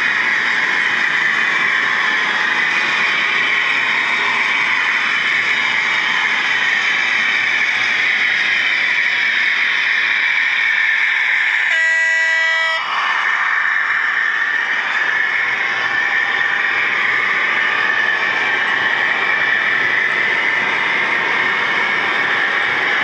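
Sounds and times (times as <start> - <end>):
model train running: 0.0 - 23.0
train horn: 11.6 - 13.0.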